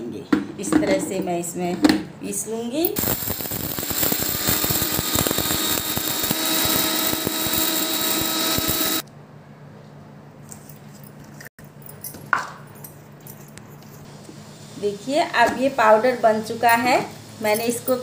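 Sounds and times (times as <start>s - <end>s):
mixer grinder grinding: 3.0s - 9.0s.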